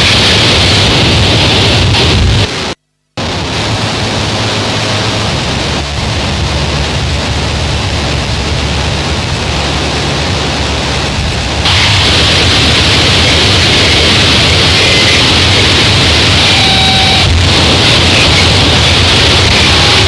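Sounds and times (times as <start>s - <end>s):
harsh electronic noise music: 11.6s - 20.0s.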